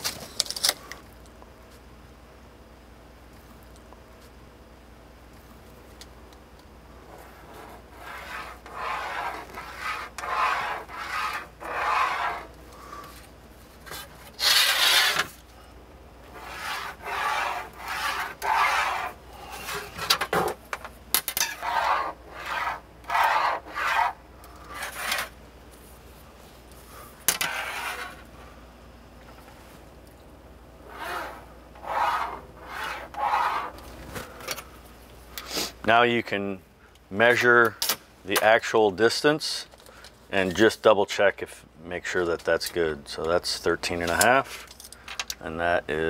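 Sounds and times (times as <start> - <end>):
pencil scratching along ruler: 7.1 - 12.6, 14.4 - 15.3, 16.3 - 19.8, 21.6 - 25.3, 27.4 - 28.2, 30.9 - 33.8.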